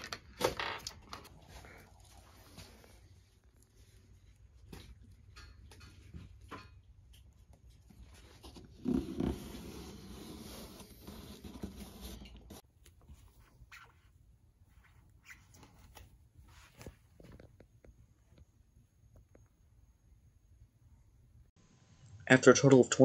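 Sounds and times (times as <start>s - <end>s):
cardboard rustling and scratching: 7.9s - 14.1s
cardboard rubbing and scraping: 8.2s - 12.6s.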